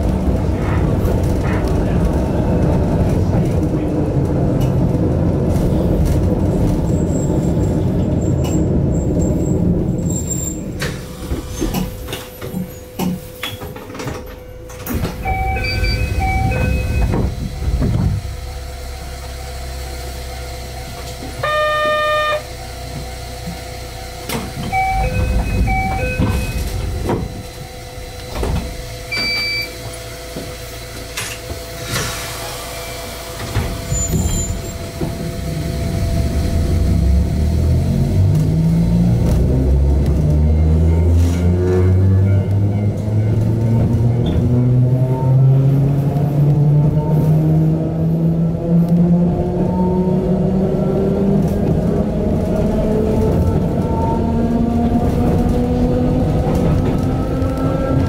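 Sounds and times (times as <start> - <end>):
train running rumble: 0.0 - 58.0
buzzer tone: 15.2 - 17.1, 21.4 - 22.5, 24.7 - 26.6
short electronic beeps: 15.2 - 17.1, 24.7 - 26.6.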